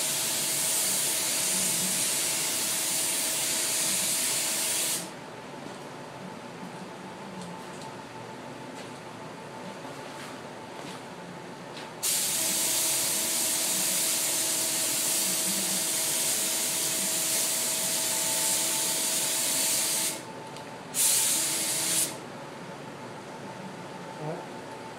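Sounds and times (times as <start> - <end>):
spray gun hissing: 12.0 - 20.2, 21.0 - 22.2.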